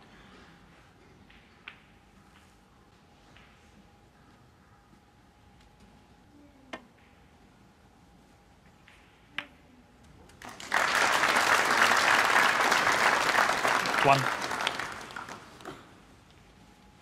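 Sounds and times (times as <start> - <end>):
audience applauding: 10.4 - 15.7.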